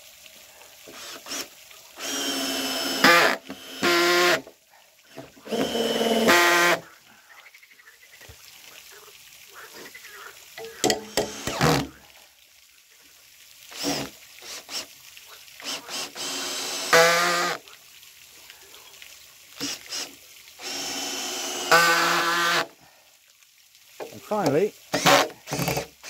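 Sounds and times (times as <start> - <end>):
cordless drill driving screws: 0.9 - 4.4, 5.1 - 6.8, 11.1 - 11.9, 13.7 - 14.9, 15.6 - 17.6, 19.6 - 22.7, 24.9 - 25.9.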